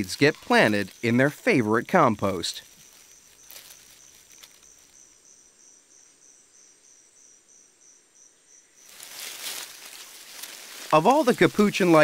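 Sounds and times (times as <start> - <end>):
insect chirping: 0.0 - 12.0.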